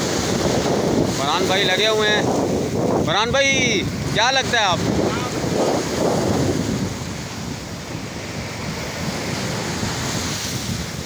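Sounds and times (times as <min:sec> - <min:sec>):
surf washing over beach: 0:00.0 - 0:11.0
wind buffeting microphone: 0:00.0 - 0:11.0.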